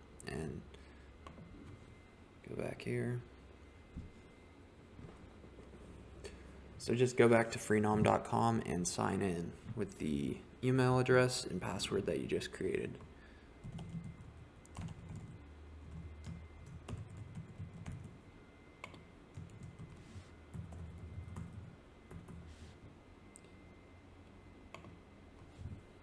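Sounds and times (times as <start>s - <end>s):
faint keyboard typing: 13.0s - 18.2s, 18.8s - 22.6s, 24.7s - 25.8s.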